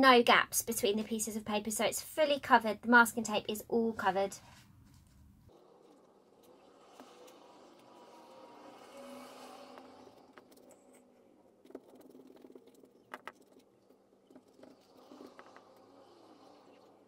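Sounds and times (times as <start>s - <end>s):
glue brush dabbing and scraping paper: 4.4s - 17.0s.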